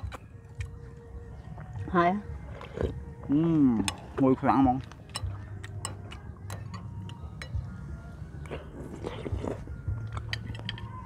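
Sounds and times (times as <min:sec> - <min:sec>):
people chewing: 0:00.0 - 0:11.0
metal spoons clinking on bowls: 0:04.8 - 0:07.8, 0:10.1 - 0:11.0.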